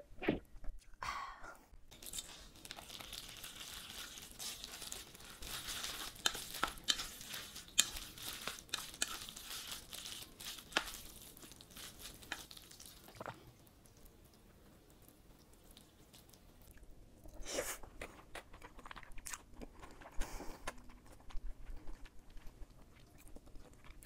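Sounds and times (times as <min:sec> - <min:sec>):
wet squishing of noodles: 0:01.9 - 0:24.0
chopsticks clicking on metal bowl: 0:06.2 - 0:07.1.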